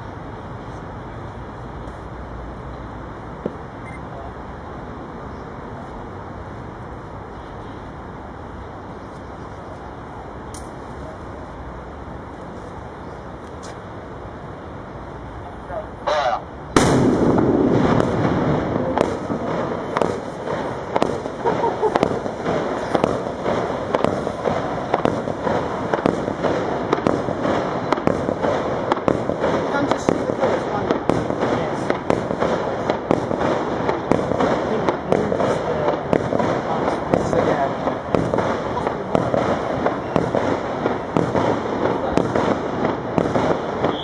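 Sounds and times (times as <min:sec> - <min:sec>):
rushing crackle of fireworks: 0:00.0 - 0:44.0
fireworks cracks and bangs: 0:15.7 - 0:44.0.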